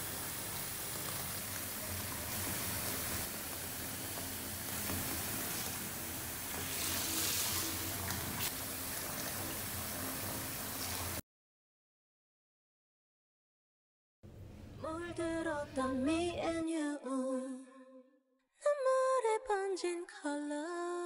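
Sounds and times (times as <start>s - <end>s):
water pouring into bathtub: 0.0s - 11.2s.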